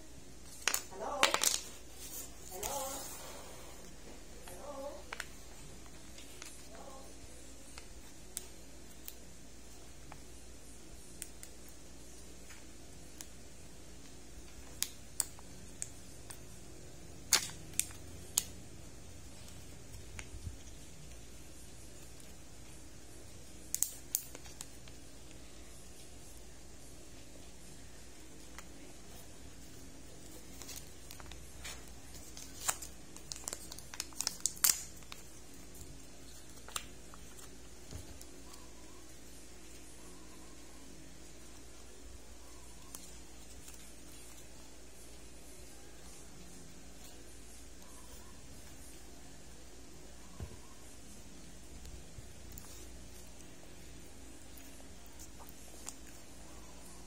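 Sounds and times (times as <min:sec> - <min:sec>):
plastic egg cracking open: 0:00.4 - 0:01.8, 0:17.2 - 0:18.6, 0:23.6 - 0:25.4, 0:30.2 - 0:38.7
plastic and foil crinkling: 0:00.4 - 0:13.3, 0:13.9 - 0:49.3, 0:50.8 - 0:57.0
foil wrapper crinkling: 0:28.5 - 0:38.7.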